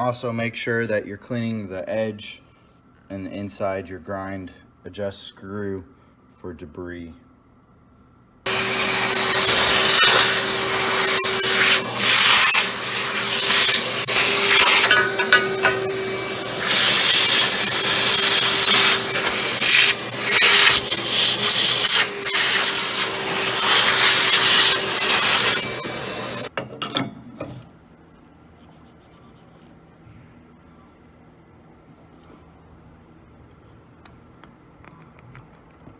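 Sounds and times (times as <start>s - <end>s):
small vacuum running: 8.5s - 26.5s.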